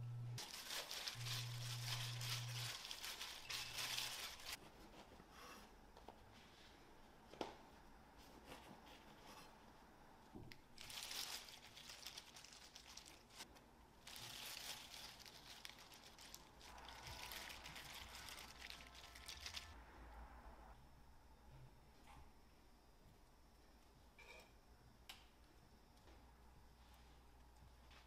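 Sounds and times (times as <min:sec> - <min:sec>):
plastic glove crinkling: 0:00.4 - 0:04.6, 0:10.8 - 0:19.8.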